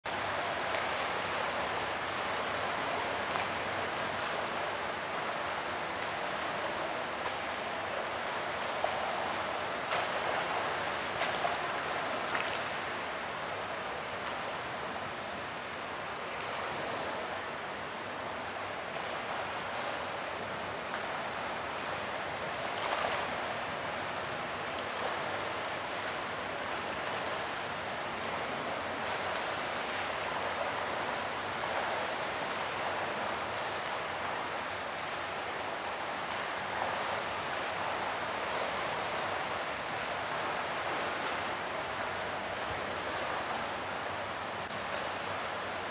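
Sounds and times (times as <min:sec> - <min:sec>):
fountain water splashing: 0:00.1 - 0:45.9.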